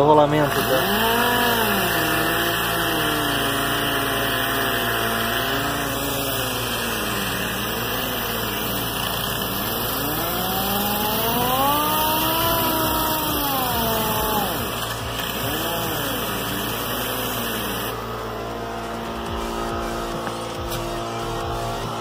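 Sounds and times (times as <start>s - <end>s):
air sander motor whine: 0.0s - 22.0s
steady low hum: 0.0s - 22.0s.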